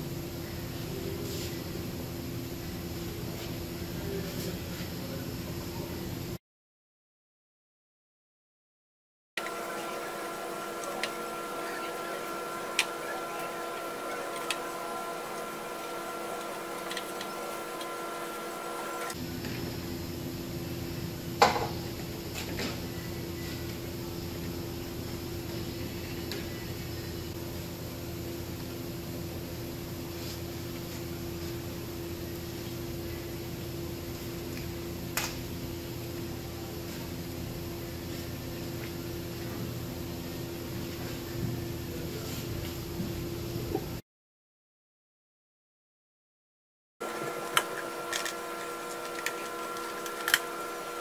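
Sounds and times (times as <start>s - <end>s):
steady workshop hum: 0.0s - 6.4s, 9.4s - 44.0s, 47.0s - 51.0s.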